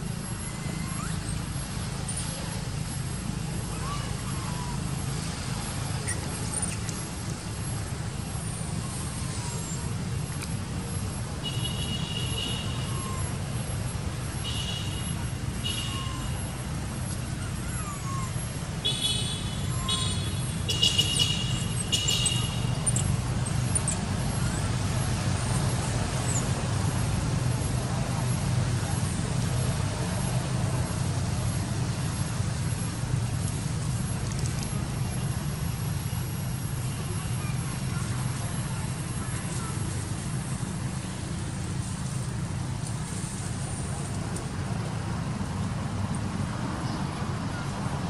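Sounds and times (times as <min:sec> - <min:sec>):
shrill high-pitched calls: 0:14.4 - 0:16.6, 0:17.4 - 0:23.2.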